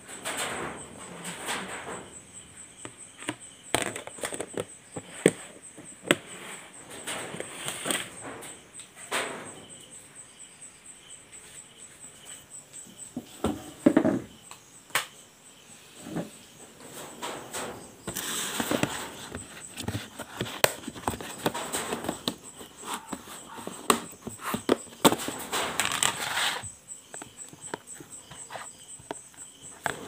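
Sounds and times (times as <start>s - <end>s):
plastic containers knocking: 2.8s - 6.4s, 13.1s - 14.5s, 16.0s - 30.0s
rustling: 15.9s - 30.0s.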